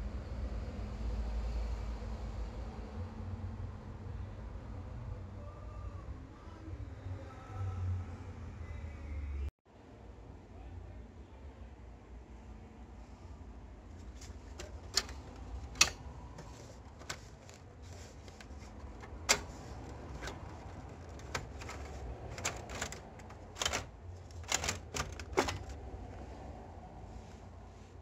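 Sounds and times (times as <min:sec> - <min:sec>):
plastic cartridge clicks and clacks: 0:14.0 - 0:25.8.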